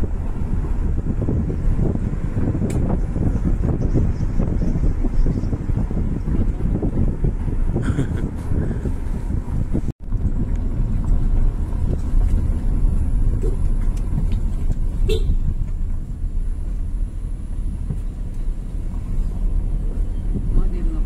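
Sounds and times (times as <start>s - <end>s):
road noise: 0.0s - 21.0s
vehicle engine rumble: 0.0s - 21.0s.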